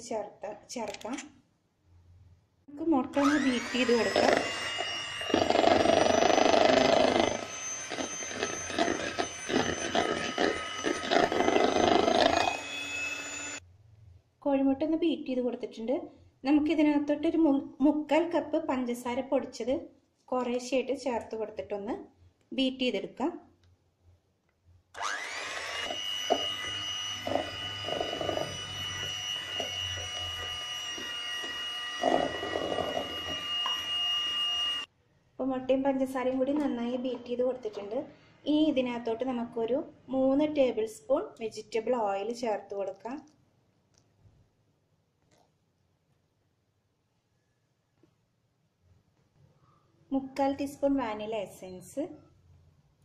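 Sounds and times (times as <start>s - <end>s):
electric hand mixer whisking: 3.1s - 13.6s, 25.0s - 34.9s.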